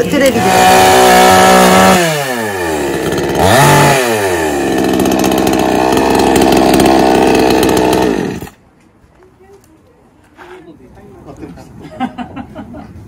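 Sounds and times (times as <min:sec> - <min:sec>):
chainsaw engine revving: 0:00.0 - 0:08.6.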